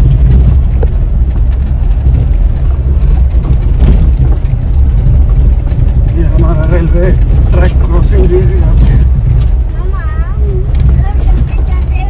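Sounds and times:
car tyres rumbling on dirt road: 0.0s - 12.0s.

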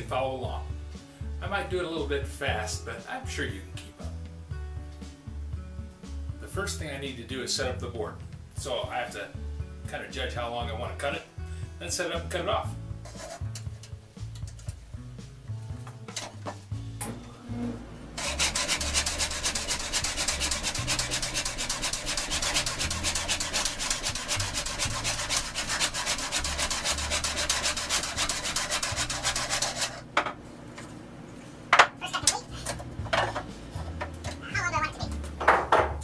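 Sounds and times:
hand saw cutting wood: 13.1s - 13.6s, 18.2s - 30.1s.

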